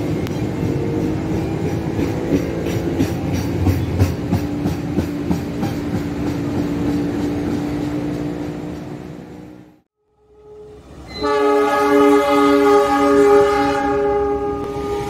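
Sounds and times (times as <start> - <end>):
train wheels clacking over rail joints: 0.0 - 9.2.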